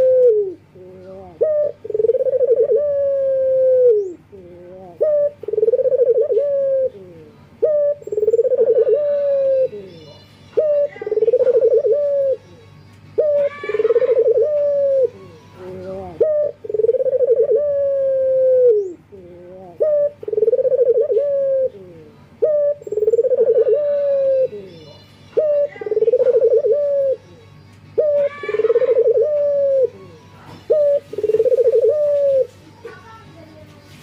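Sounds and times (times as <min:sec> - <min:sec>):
dove cooing: 0:00.0 - 0:10.0, 0:10.6 - 0:32.6.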